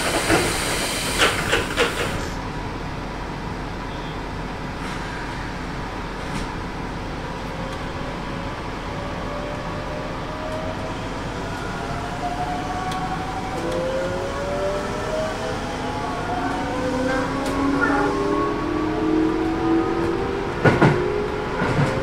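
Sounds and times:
train running noise: 0.0 - 22.0
electric train inverter whining: 6.9 - 22.0.

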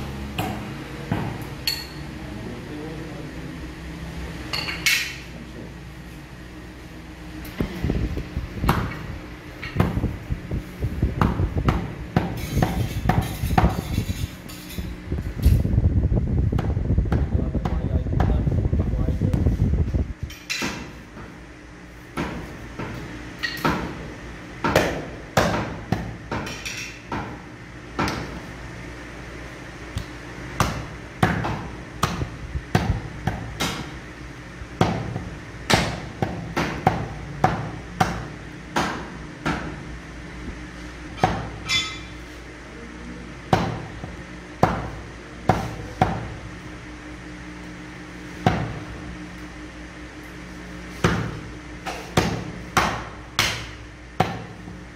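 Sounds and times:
cleaver chopping meat on wood: 24.6 - 26.5, 34.8 - 39.8, 52.1 - 54.5.

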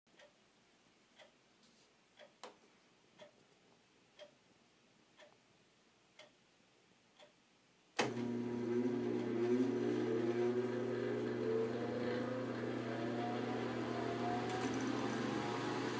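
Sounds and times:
faint ticking: 0.1 - 1.4, 2.1 - 4.4, 5.1 - 5.5, 6.1 - 6.4, 7.1 - 7.5
exhaust fan motor humming: 8.0 - 15.9.

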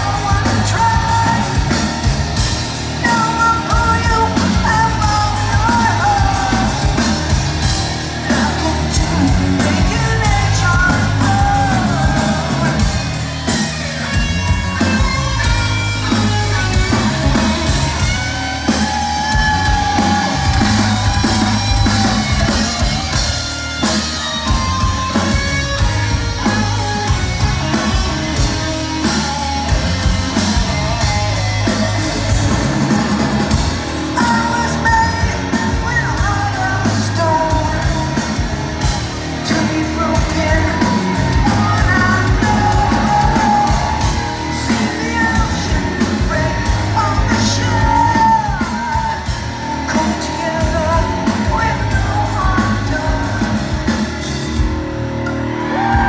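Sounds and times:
man singing: 0.0 - 2.2, 3.0 - 13.6, 34.1 - 54.2
live rock band playing: 0.0 - 56.0.

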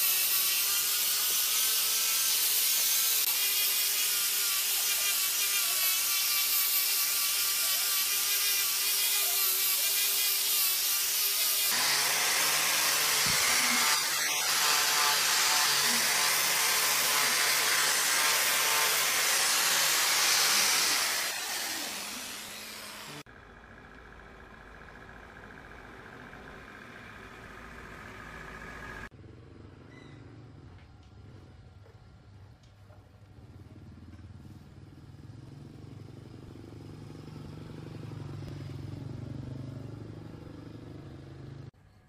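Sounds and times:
angle grinder grinding wood: 0.0 - 23.3.

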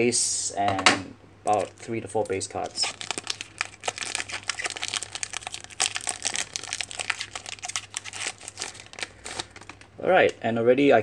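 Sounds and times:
plastic wrapper crinkling and tearing: 1.5 - 9.9.

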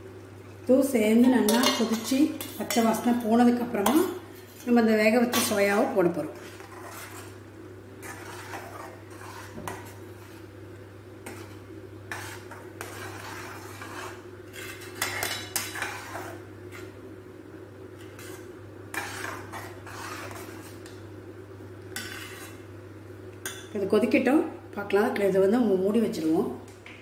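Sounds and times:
metal spoon scraping a steel pan: 1.5 - 5.7, 6.4 - 7.4, 8.0 - 10.0, 11.2 - 16.9, 18.0 - 20.8, 22.0 - 22.6.

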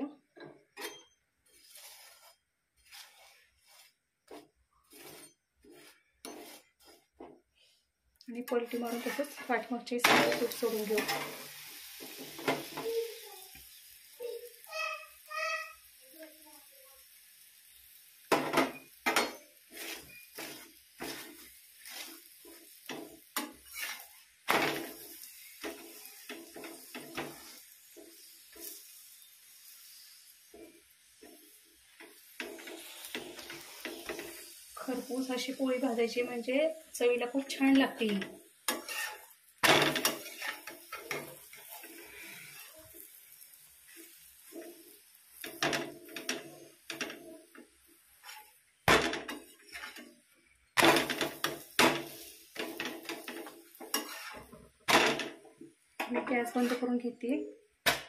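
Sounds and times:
faint sizzle: 0.0 - 57.9
spatula scraping flatbread: 0.8 - 7.3, 8.5 - 12.7, 19.1 - 35.4, 38.7 - 43.2, 43.8 - 48.6, 49.3 - 50.2, 50.8 - 54.6, 56.5 - 57.0.

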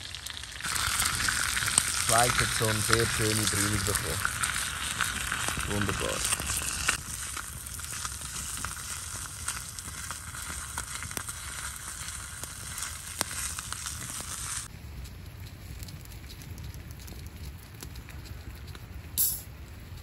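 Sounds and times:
steak sizzling in a pan: 0.0 - 14.7
fire crackling: 0.0 - 20.0.

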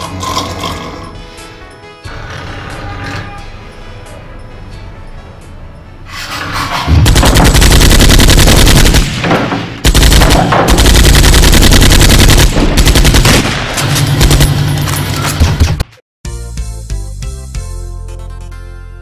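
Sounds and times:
rapid automatic gunfire: 6.9 - 14.6.

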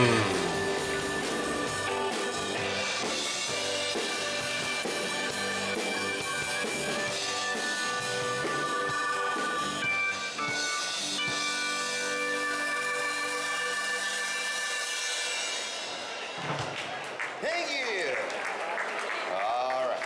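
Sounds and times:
held instrument notes: 0.0 - 1.7
steady drum beat: 0.0 - 7.2.

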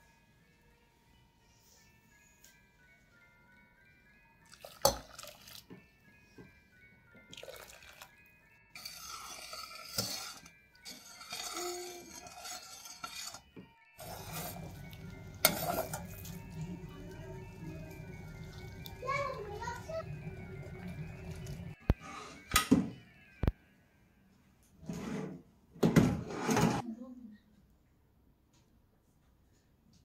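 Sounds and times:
soft chiming background music: 0.0 - 25.2
utensils clinking on dishes: 8.8 - 21.8.

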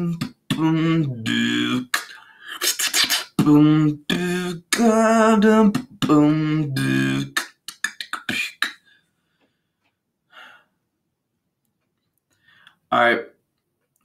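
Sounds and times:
beatboxing: 0.0 - 8.9
mouth clicks and snares: 1.9 - 3.4.

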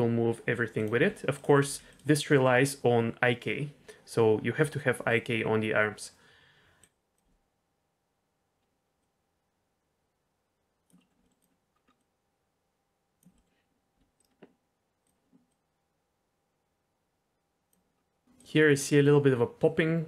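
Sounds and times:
computer mouse clicks: 10.8 - 12.1, 13.2 - 15.6.

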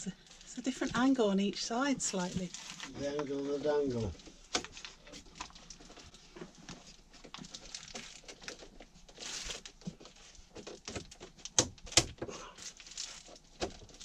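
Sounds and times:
scraping rustle: 2.0 - 11.4.

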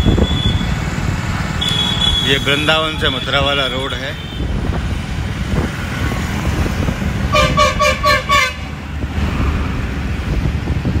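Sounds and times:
vehicle horn beeping: 0.0 - 0.8, 1.6 - 4.5, 7.3 - 8.7
road rumble with traffic: 0.0 - 11.0.

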